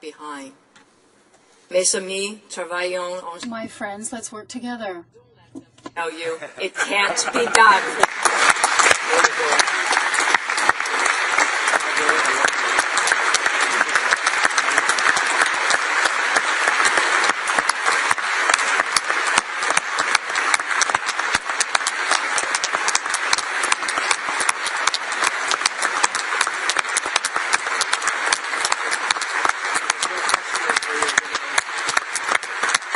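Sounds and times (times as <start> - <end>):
crowd applauding: 6.8 - 32.9.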